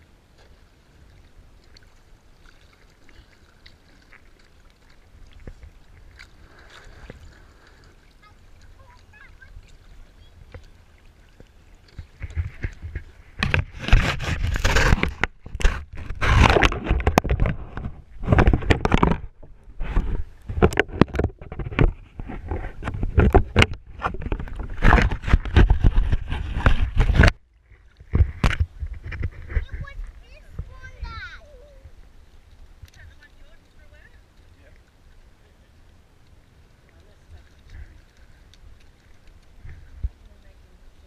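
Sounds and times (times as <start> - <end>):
rubbing and scraping on microphone: 11.9 - 31.6.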